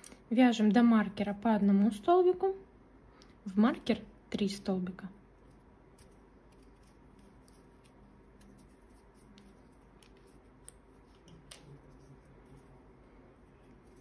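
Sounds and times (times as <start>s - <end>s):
crochet hook clicks and rustles: 5.4s - 12.2s.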